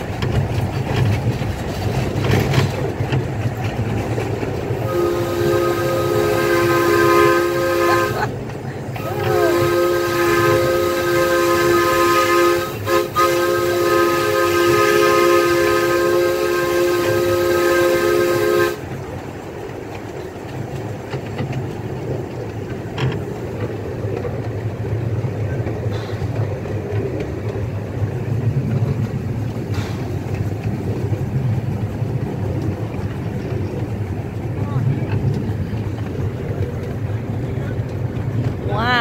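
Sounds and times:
rail clicks: 0:00.0 - 0:39.0
train rumbling along track: 0:00.0 - 0:39.0
steam whistle chord: 0:04.8 - 0:08.3, 0:09.0 - 0:18.8.

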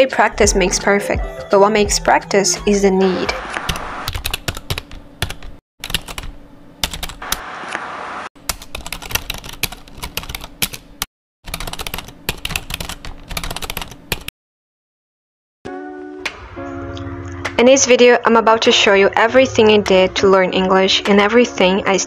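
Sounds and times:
computer keyboard typing: 0:03.7 - 0:07.4, 0:08.4 - 0:14.3.

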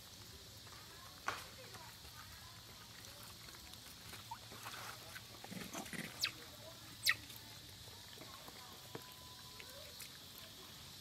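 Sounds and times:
monkey squeak: 0:06.0 - 0:06.4, 0:07.0 - 0:07.3.

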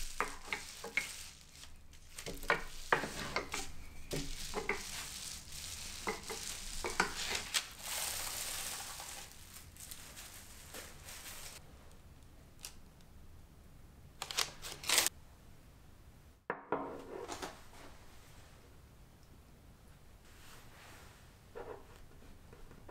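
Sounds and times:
plastic rustles: 0:00.0 - 0:11.6
rolling pin over bubble wrap: 0:00.0 - 0:11.6.

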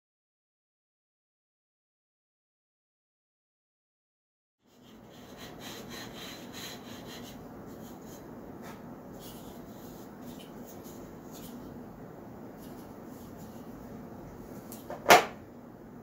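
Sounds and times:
hand tool rubbing wood: 0:04.7 - 0:11.8.

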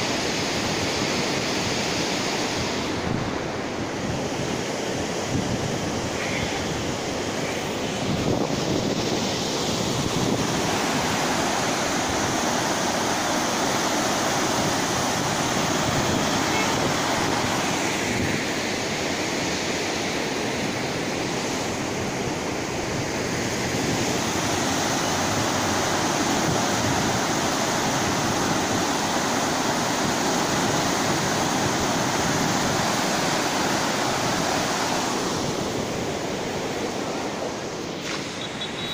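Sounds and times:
wind on microphone: 0:00.0 - 0:19.0
river water rushing through gates: 0:00.0 - 0:38.9.

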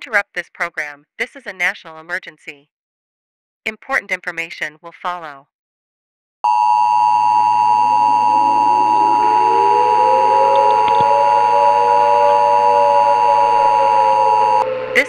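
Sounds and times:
two-tone alert beep: 0:06.5 - 0:14.6
faint rising tone: 0:06.5 - 0:15.0
low hum: 0:06.5 - 0:15.0.

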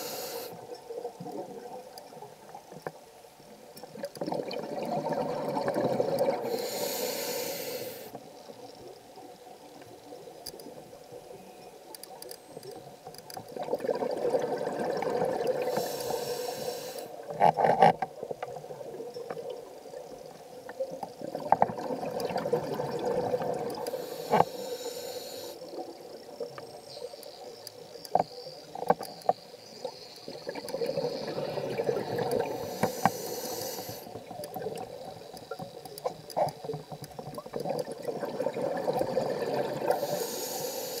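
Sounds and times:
diver breathing through regulator: 0:00.0 - 0:00.6, 0:06.4 - 0:08.2, 0:15.6 - 0:17.2, 0:23.9 - 0:25.6, 0:32.4 - 0:34.1, 0:39.9 - 0:41.0
underwater bubbling: 0:00.0 - 0:41.0.

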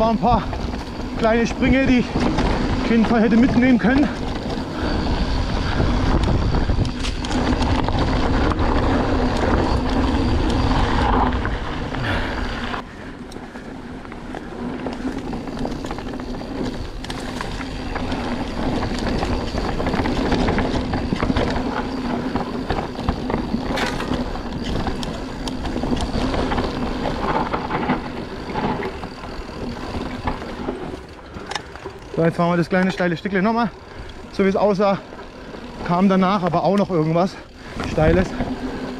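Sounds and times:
wind rush on microphone: 0:00.0 - 0:12.9
bike rattling over bumps: 0:00.0 - 0:38.9
bike tyres rolling on dirt: 0:00.0 - 0:38.9.

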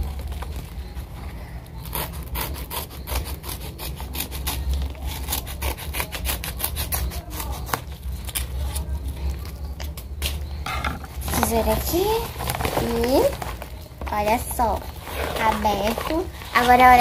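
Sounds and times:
scissors cutting paper: 0:01.8 - 0:10.4
paper crackling and rustling: 0:11.0 - 0:17.0.

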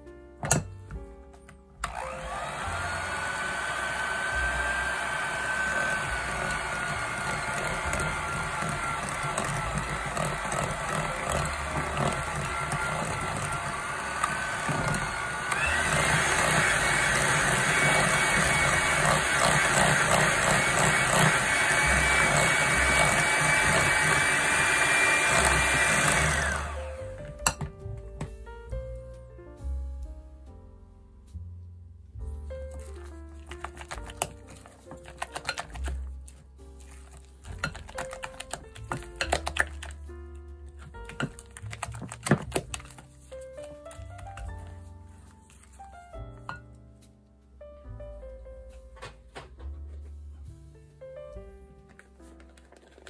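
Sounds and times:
electric hand mixer whining: 0:01.8 - 0:27.3, 0:33.5 - 0:36.0, 0:36.8 - 0:40.0.

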